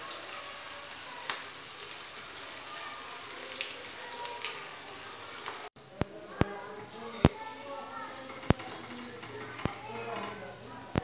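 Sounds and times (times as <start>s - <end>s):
deep-frying sizzle: 0.0s - 5.7s.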